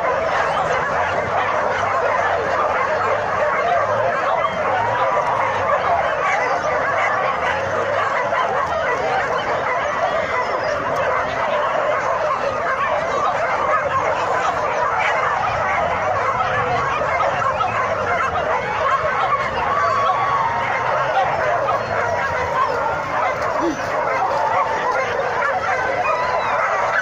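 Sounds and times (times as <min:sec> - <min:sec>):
dogs whining and yelping: 0:00.0 - 0:27.0.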